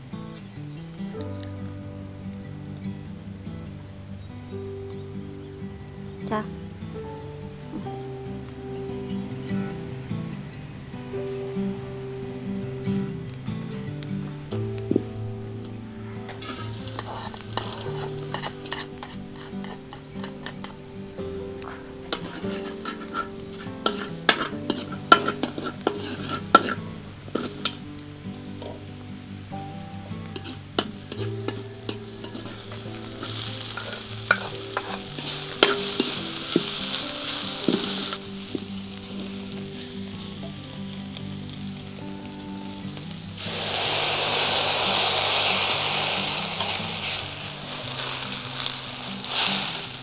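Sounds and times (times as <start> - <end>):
loud hiss of broth: 11.1 - 12.5, 16.4 - 21.2, 21.8 - 28.8, 29.5 - 50.0
spatula scraping a wok: 16.3 - 20.9, 22.0 - 27.8, 30.3 - 38.6, 44.9 - 50.0
food frying in a wok: 16.3 - 50.0
spatula tapping on a wok: 17.6 - 20.9, 23.8 - 26.8.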